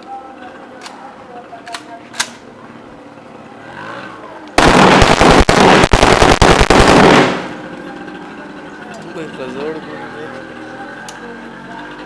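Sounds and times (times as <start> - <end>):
automatic rifle fire: 4.6 - 7.6.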